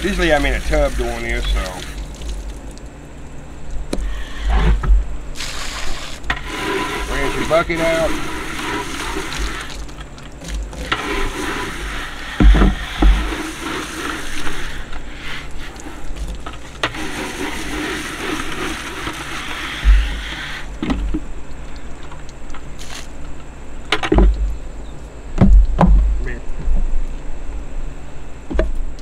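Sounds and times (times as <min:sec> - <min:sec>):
hose spraying water into plastic bucket: 0:00.0 - 0:02.8, 0:03.9 - 0:23.2
dull thumps: 0:12.4 - 0:13.4, 0:23.9 - 0:24.5, 0:25.4 - 0:26.9.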